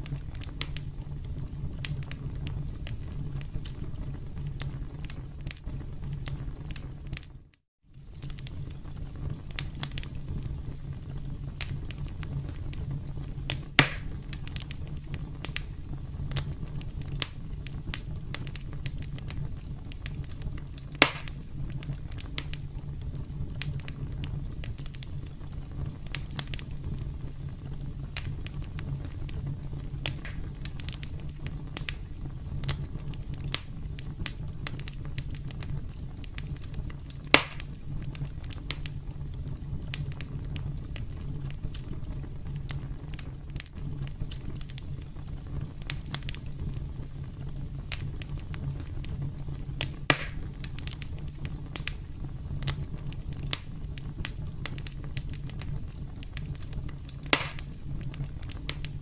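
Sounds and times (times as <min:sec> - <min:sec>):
campfire crackling: 0:00.0 - 0:59.0
loud fire pops: 0:00.0 - 0:59.0.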